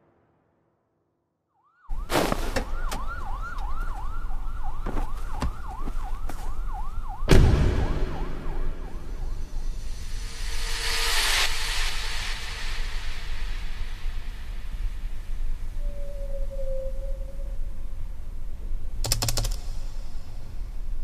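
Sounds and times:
siren yelping: 1.6s - 9.6s
loud thud: 7.3s - 10.1s
low rumble: 7.3s - 15.9s.

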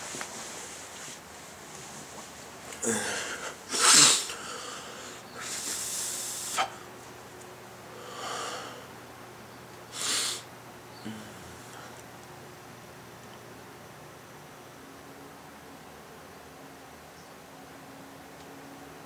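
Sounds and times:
man breathing hard: 2.8s - 6.9s, 7.9s - 8.9s, 9.9s - 10.4s.

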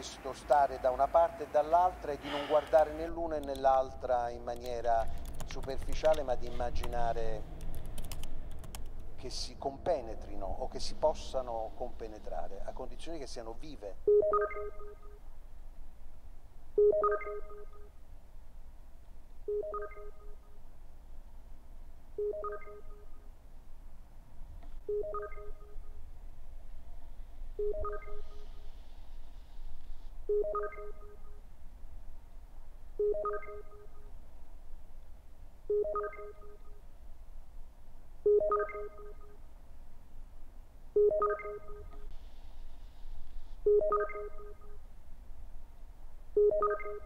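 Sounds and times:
low steady hum: 0.0s - 47.0s
smartphone ringing: 14.1s - 15.1s, 16.8s - 17.8s, 19.5s - 20.4s, 22.2s - 23.1s, 24.9s - 25.8s, 27.6s - 28.5s, 30.3s - 31.2s, 33.0s - 34.0s, 35.7s - 36.7s, 38.3s - 39.3s, 41.0s - 42.0s, 43.6s - 44.7s, 46.4s - 47.0s
electronic alert tone: 14.1s - 15.2s, 16.8s - 17.9s, 19.5s - 20.4s, 22.2s - 23.2s, 24.9s - 25.8s, 27.6s - 28.5s, 30.3s - 31.3s, 33.0s - 34.0s, 35.7s - 36.8s, 38.3s - 39.4s, 41.0s - 42.0s, 43.7s - 44.8s, 46.4s - 47.0s.

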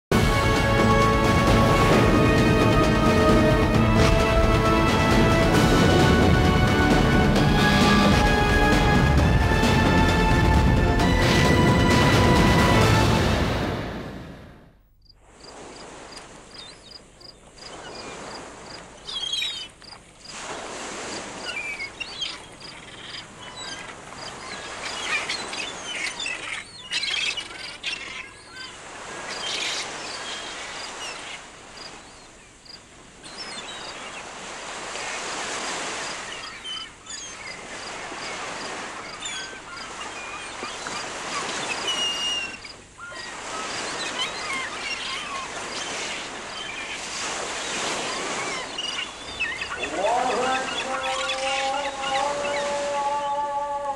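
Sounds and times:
water washing like surf: 0.1s - 14.5s, 15.2s - 53.9s
birds chirping and twittering: 15.0s - 20.4s, 21.2s - 53.9s.

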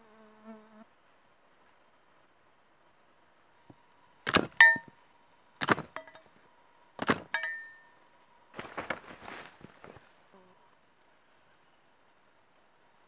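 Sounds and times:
sharp knocks with metallic ring: 4.3s - 5.0s, 5.6s - 6.3s, 7.0s - 8.0s
footsteps crunching through dry leaves: 8.5s - 10.3s.

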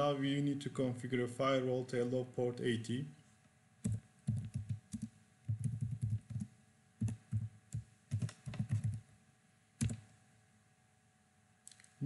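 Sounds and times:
typing on computer keyboard: 3.8s - 9.0s, 9.8s - 10.0s.

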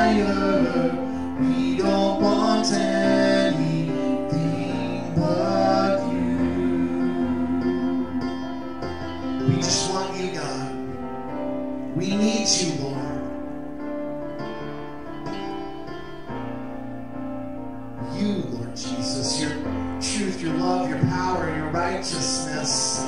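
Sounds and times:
man singing: 0.0s - 8.4s, 9.4s - 11.0s, 18.1s - 23.0s
electric keyboard chords: 0.0s - 23.0s.

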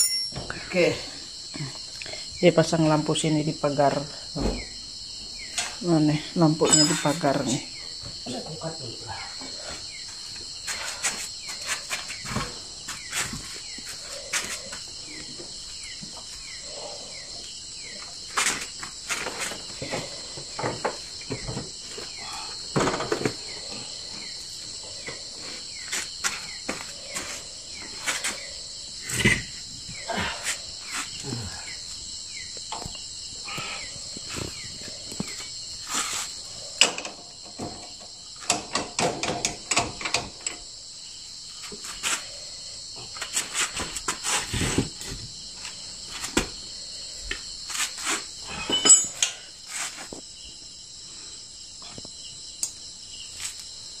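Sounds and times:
knocks and metallic clinks: 0.0s - 0.7s, 6.6s - 7.3s, 36.8s - 40.6s, 48.4s - 49.5s
night insects chorus: 0.0s - 54.0s.

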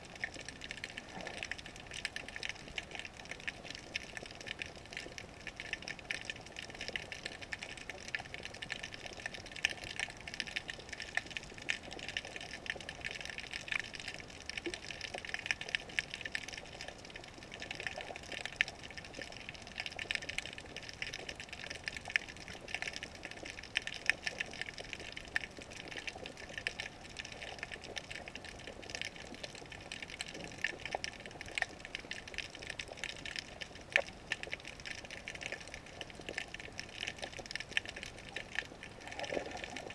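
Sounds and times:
crackle of tiny clicks: 0.0s - 39.9s.

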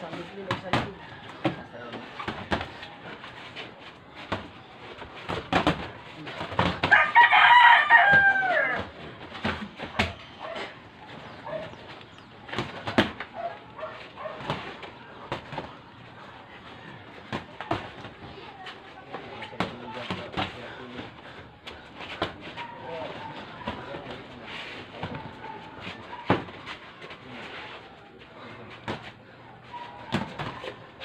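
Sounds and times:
rooster crowing: 6.9s - 8.9s.

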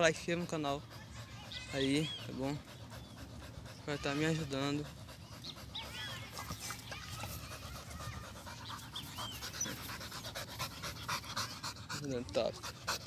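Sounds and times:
dog panting: 0.0s - 13.0s.

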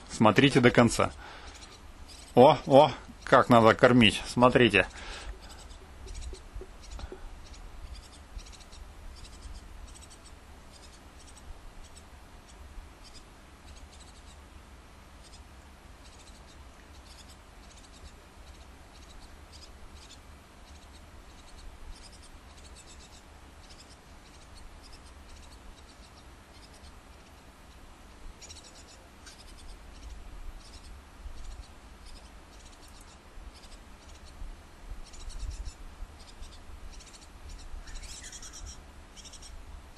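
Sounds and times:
low hum: 0.0s - 15.3s.

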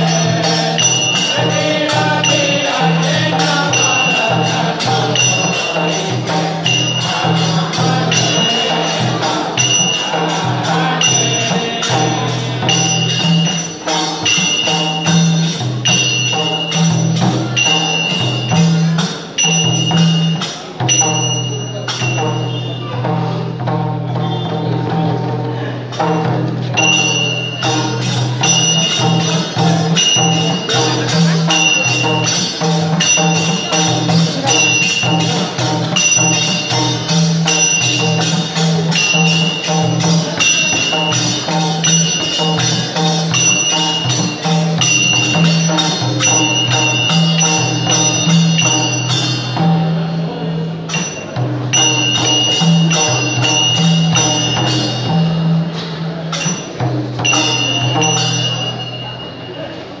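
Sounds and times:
small hand cymbals ringing: 0.0s - 24.7s, 25.8s - 60.0s
barrel drum rhythm: 0.0s - 59.0s.

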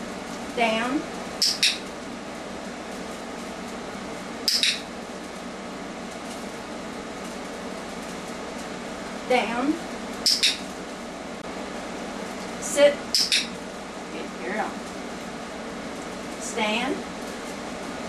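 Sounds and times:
training clicker double click: 4.5s - 4.8s, 13.2s - 13.5s.

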